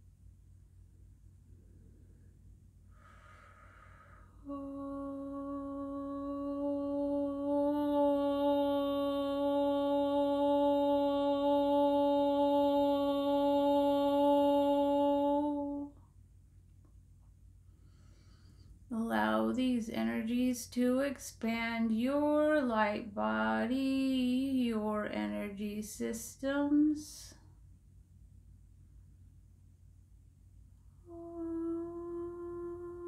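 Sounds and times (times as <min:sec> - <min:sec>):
breath in: 0:02.9 - 0:04.4
woman humming: 0:04.0 - 0:16.0, 0:31.0 - 0:33.0.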